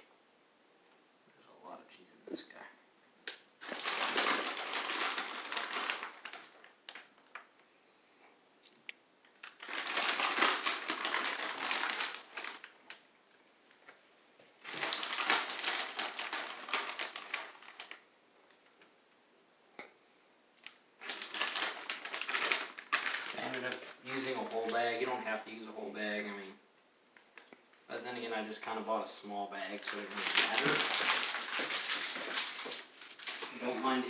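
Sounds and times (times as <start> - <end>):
plastic bag crinkling: 3.6 - 7.4, 9.3 - 13.0, 14.6 - 18.1, 20.6 - 25.9, 28.2 - 34.0.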